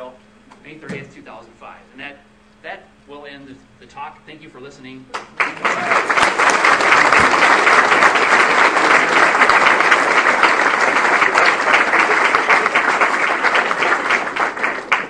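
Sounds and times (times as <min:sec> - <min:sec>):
audience applauding: 0:05.1 - 0:15.0.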